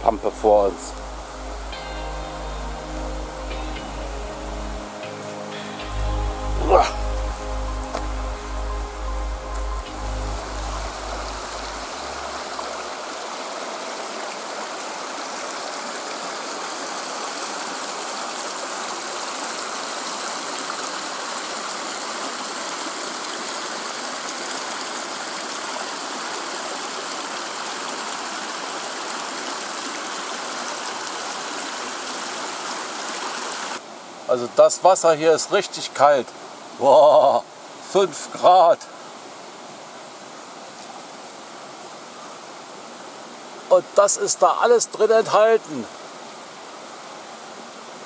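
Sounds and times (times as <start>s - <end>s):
background music: 0.0s - 12.9s
stream rushing over rocks: 0.0s - 48.0s.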